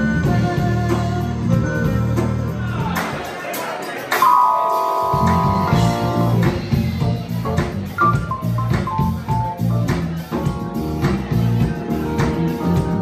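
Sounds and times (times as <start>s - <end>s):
electric keyboard chords: 0.0s - 2.8s, 4.1s - 13.0s
electric bass guitar line: 0.0s - 2.9s, 4.2s - 13.0s
drums keeping time: 0.0s - 13.0s.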